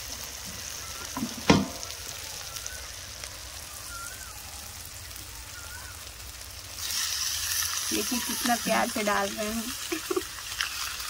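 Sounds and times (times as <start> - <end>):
spices sizzling in oil: 0.0 - 11.0.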